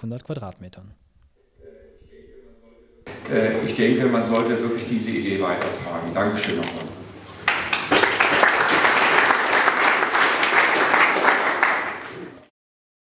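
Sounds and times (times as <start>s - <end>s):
audience applauding: 7.4s - 12.5s.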